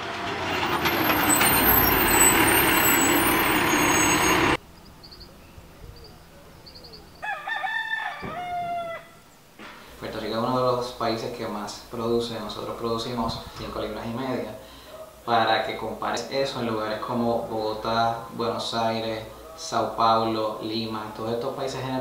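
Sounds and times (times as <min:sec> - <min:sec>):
garbage truck running: 0:00.0 - 0:04.6
faint bird chirps: 0:04.7 - 0:07.4
rooster crowing: 0:07.2 - 0:09.3.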